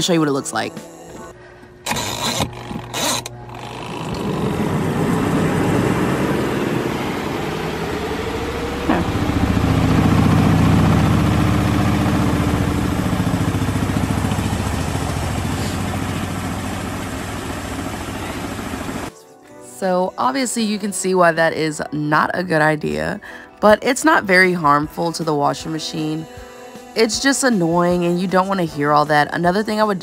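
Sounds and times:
washing machine spinning: 0:02.0 - 0:19.1
heavy machine rumble: 0:03.3 - 0:19.1.

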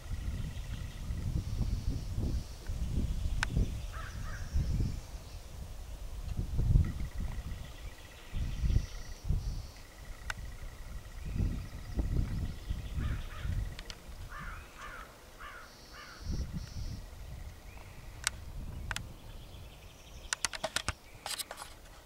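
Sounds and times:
sharp clicks: 0:13.5 - 0:14.0, 0:18.2 - 0:19.1, 0:20.3 - 0:21.8
crow cawing: 0:14.3 - 0:16.3.

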